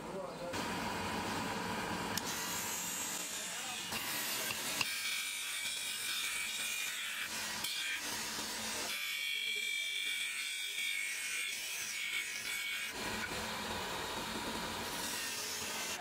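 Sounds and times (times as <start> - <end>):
grinding wheel on wood: 1.9 - 10.0.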